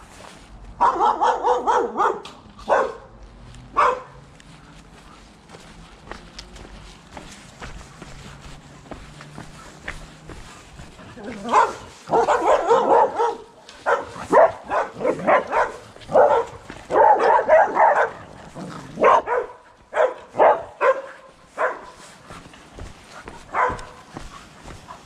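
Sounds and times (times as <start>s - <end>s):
dog barking: 0.8s - 4.2s, 11.3s - 18.3s, 19.0s - 22.0s, 23.4s - 24.2s.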